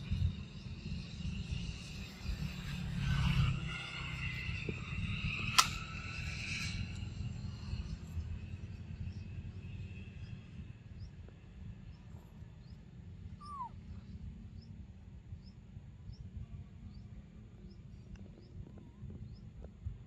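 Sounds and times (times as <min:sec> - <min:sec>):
steady low rumble: 0:00.0 - 0:20.0
faint high chirps: 0:11.9 - 0:14.8.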